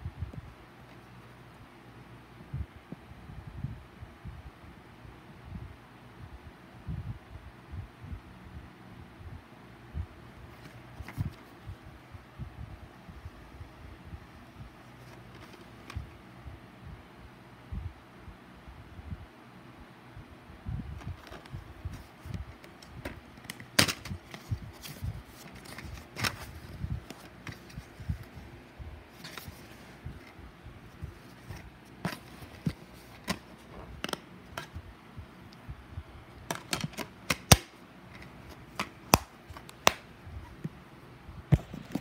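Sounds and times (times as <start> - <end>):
plastic case clicks: 21.1 - 27.8, 31.5 - 34.8, 36.4 - 40.1.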